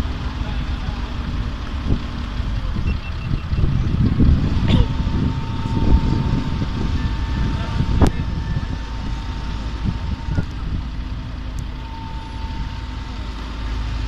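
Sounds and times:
diesel engines rumbling: 0.0 - 14.0
thin high tone: 4.7 - 13.9.

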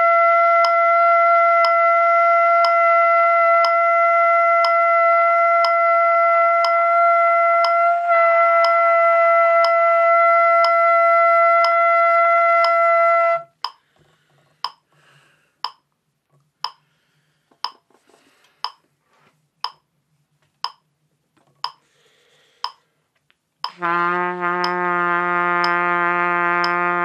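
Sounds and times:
trumpet holding a long tone: 0.0 - 13.5, 23.7 - 27.0
metronome clicking: 0.6 - 0.8, 7.6 - 7.8, 12.6 - 12.8, 13.6 - 13.8, 14.6 - 14.9, 15.6 - 15.9, 16.6 - 16.8, 17.6 - 17.8, 18.6 - 18.8, 19.6 - 19.9, 20.6 - 20.9, 21.6 - 21.8, 22.6 - 22.8, 23.6 - 23.8, 24.6 - 24.8, 25.6 - 25.8, 26.6 - 26.9.

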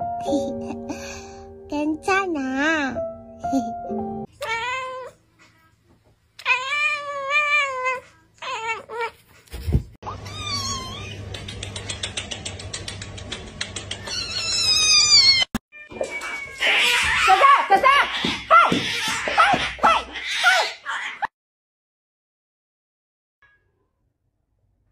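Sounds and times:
cat meowing: 4.4 - 5.2, 10.1 - 11.2, 14.1 - 17.4.

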